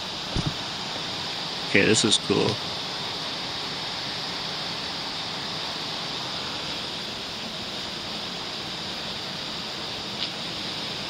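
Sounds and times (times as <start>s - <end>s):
running water rushing: 0.1s - 2.4s.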